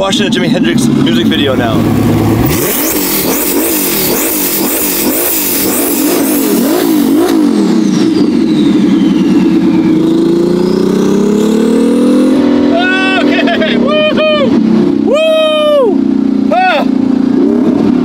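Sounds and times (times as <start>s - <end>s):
car engine revving: 0.0s - 18.0s
high whistle: 7.0s - 11.5s.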